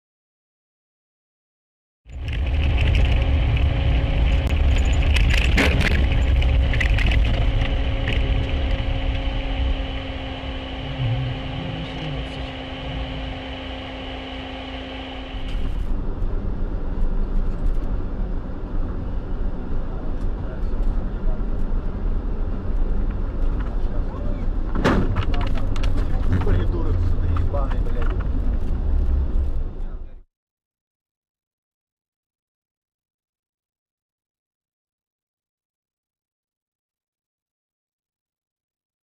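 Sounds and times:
car driving rumble: 2.1s - 30.2s
constant hum: 2.1s - 30.2s.

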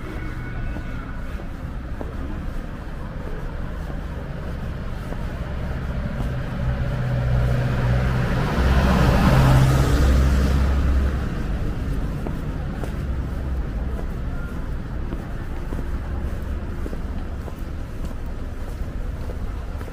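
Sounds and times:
street traffic rumble: 0.0s - 19.9s
vehicle driving past: 5.6s - 12.1s.

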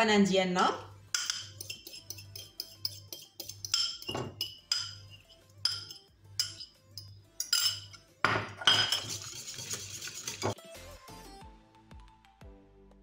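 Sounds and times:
whisk tapping on bowl: 1.2s - 5.0s, 8.7s - 10.6s
whisk whisking against bowl: 1.2s - 6.7s, 8.8s - 10.6s.

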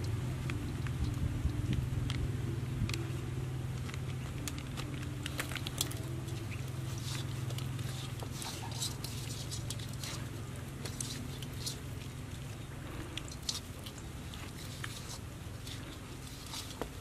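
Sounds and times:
hand mixing raw meat: 0.0s - 17.0s
low steady hum: 0.0s - 17.0s
spice mixture rustling: 2.4s - 17.0s.

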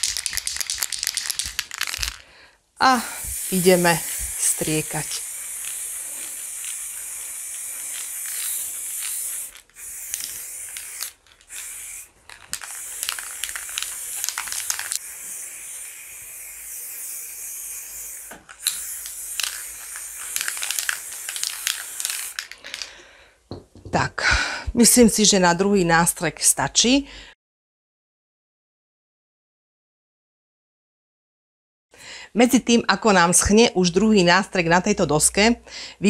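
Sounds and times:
spray paint can hissing: 0.0s - 2.2s, 2.8s - 22.9s.

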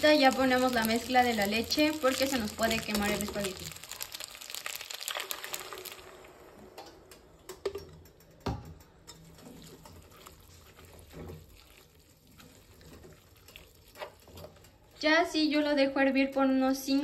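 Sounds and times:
liquid pouring hiss: 3.6s - 6.7s
fork stirring noodles: 9.2s - 14.8s.

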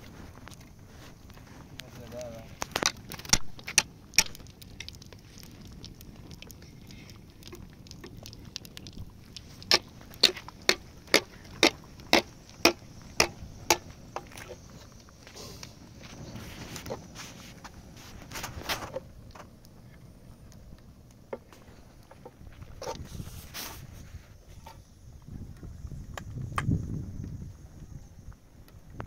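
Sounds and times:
wooden stick knocking on ground: 9.7s - 14.6s.

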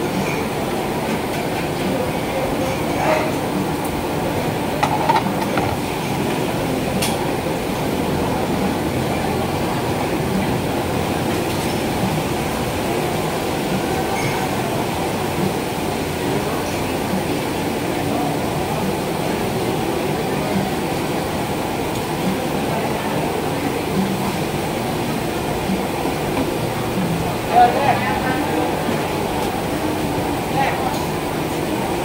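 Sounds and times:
burners and ventilation roar: 0.0s - 32.0s
faint voices: 0.0s - 32.0s
utensils clinking: 4.8s - 6.0s.

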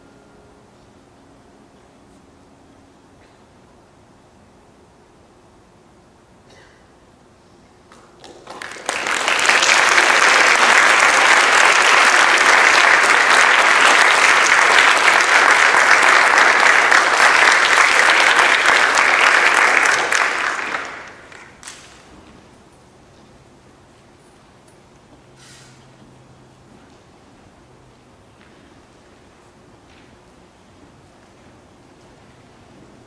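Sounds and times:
audience applauding: 8.2s - 22.1s.

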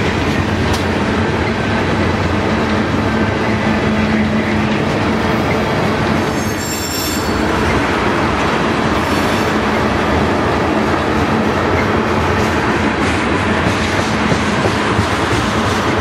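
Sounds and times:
clickety-clack over rail joints: 0.0s - 16.0s
train wheels rumbling on rail: 0.0s - 16.0s
high wheel squeal: 6.2s - 7.8s.

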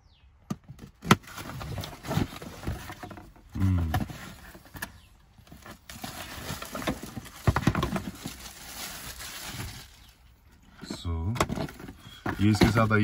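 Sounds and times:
cardboard box rustling: 0.7s - 10.1s, 11.4s - 13.0s
plastic wrapping crinkling: 5.5s - 10.4s.

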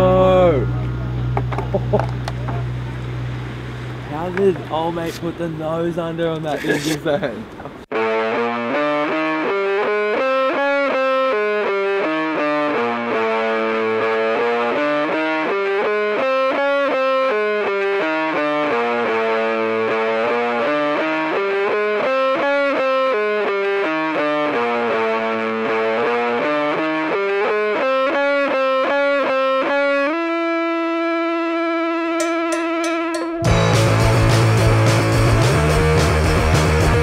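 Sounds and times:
distorted electric guitar: 0.0s - 4.5s, 7.9s - 37.0s.

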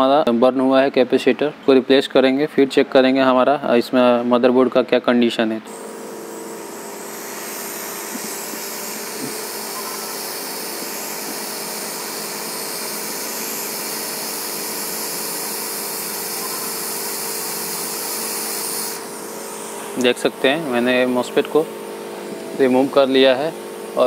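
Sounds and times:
hot air blower hissing: 5.7s - 24.0s.

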